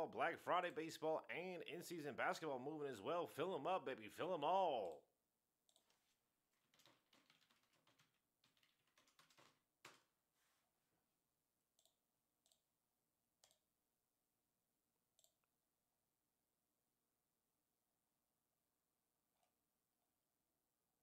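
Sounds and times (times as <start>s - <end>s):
computer keyboard keystrokes: 6.6s - 10.1s.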